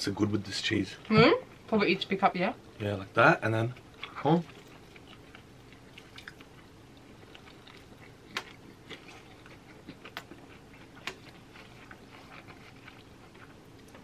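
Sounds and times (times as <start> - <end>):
chewing and wet mouth sounds: 3.7 - 14.0.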